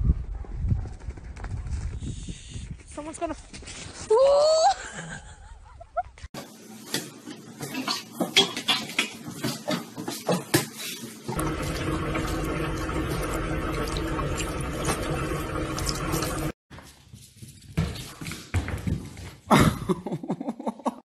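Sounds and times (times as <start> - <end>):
faucet running into sink: 11.3 - 16.6.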